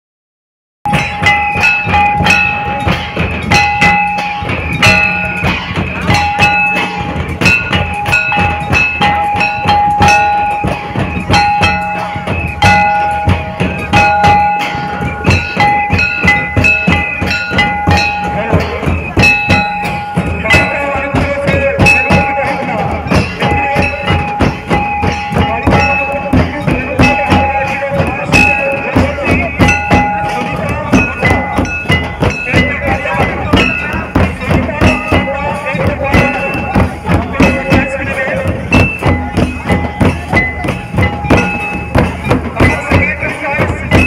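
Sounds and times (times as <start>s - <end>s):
barrel drums beaten fast: 0.9s - 44.0s
high melody instrument: 0.9s - 44.0s.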